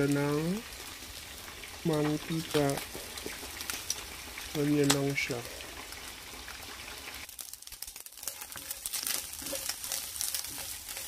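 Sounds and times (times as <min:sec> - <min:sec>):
anchovies crackling while dry-frying: 0:00.0 - 0:11.0
meat sizzling in a frying pan: 0:00.0 - 0:11.0
wooden spatula stirring in pan: 0:01.5 - 0:04.7, 0:06.6 - 0:11.0.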